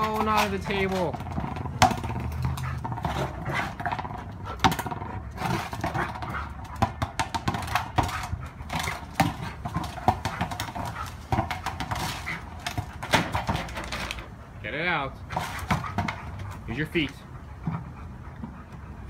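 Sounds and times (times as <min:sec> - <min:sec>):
rubber ball knocking on stone: 0:00.0 - 0:14.0.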